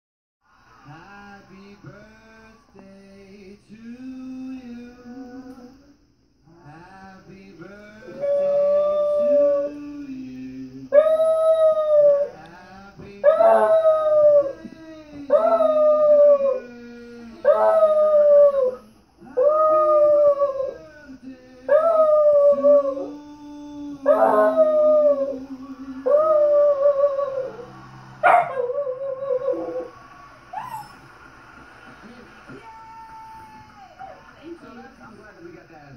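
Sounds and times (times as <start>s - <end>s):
singing from television: 0.4s - 35.9s
dog howling: 8.0s - 10.0s, 10.9s - 12.4s, 13.2s - 20.9s, 21.7s - 31.0s.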